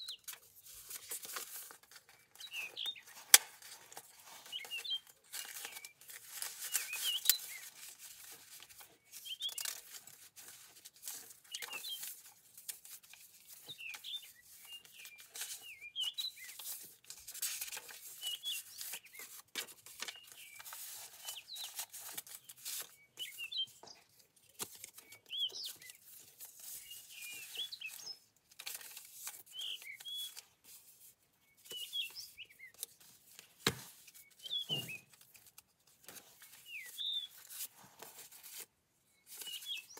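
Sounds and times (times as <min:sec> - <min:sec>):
small birds chirping: 0:00.0 - 0:39.9
paper pages rustling and flapping: 0:00.1 - 0:39.9.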